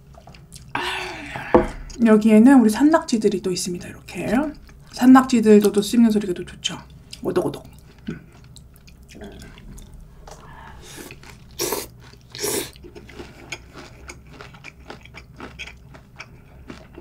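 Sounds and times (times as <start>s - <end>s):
wet crunchy chewing: 7.0s - 17.0s
wet slurping: 9.1s - 12.8s.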